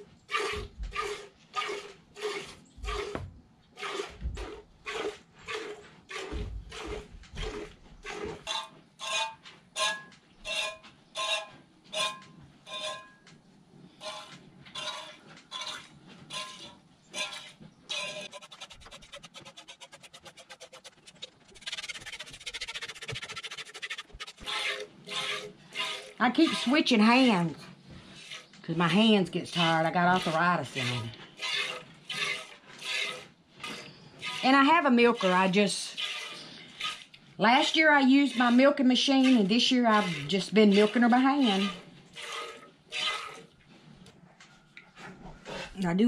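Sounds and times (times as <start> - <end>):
milk squirting into metal pail: 0.3 - 8.6, 17.2 - 43.6.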